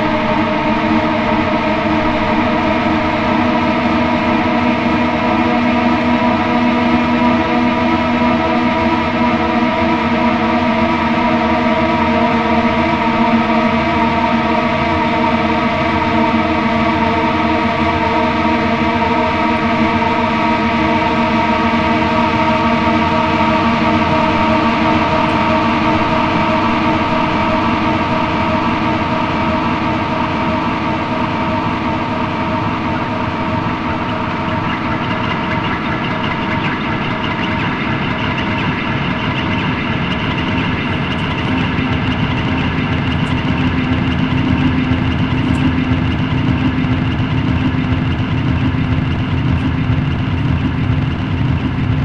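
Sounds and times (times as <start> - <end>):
ambient drone of held tones: 0.0 - 52.0.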